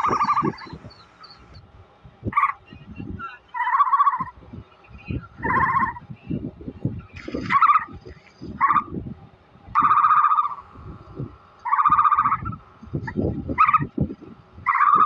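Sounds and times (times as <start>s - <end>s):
ostrich calling: 0.0s - 1.6s, 2.3s - 6.1s, 7.0s - 9.0s, 9.7s - 10.7s, 11.6s - 14.0s, 14.6s - 15.0s
low pulsing sounds: 0.0s - 15.0s.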